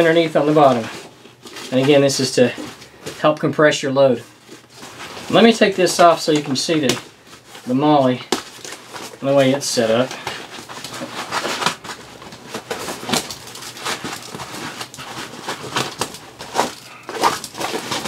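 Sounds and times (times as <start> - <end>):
nylon fabric rustling and scraping: 0.0 - 18.0.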